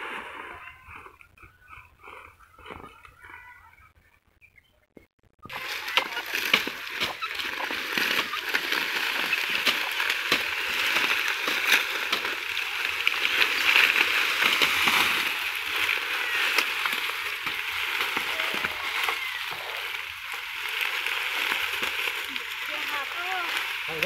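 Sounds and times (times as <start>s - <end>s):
dry sugarcane rustling and crackling: 5.4s - 24.0s
cane stalks snapping: 5.5s - 24.0s.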